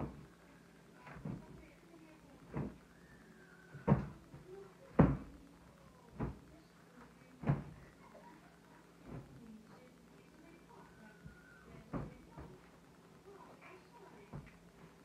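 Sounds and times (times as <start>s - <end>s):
soft thumps on a bed: 3.7s - 5.4s, 7.4s - 7.9s, 11.3s - 12.6s.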